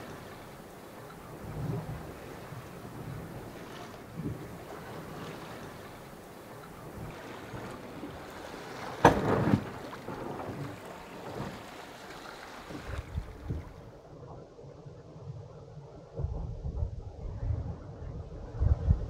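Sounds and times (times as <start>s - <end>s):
water washing along hull: 0.0s - 14.3s
wind: 0.0s - 19.0s
loud thump: 9.0s - 9.8s.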